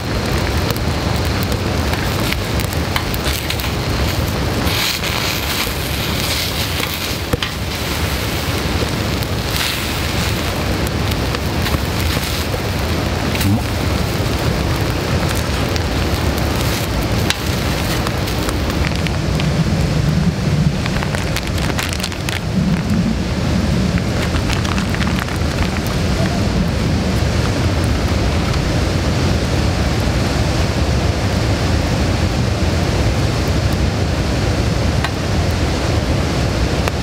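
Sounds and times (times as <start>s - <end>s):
batter sizzling on griddle: 0.0s - 26.3s
small crackles and clicks: 0.0s - 28.8s, 35.0s - 35.6s.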